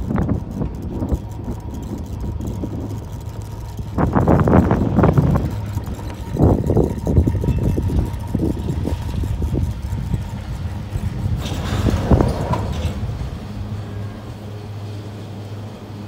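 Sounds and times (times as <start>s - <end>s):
chair rattling over sheave wheels: 0.0s - 13.4s
chairlift humming: 0.0s - 16.0s.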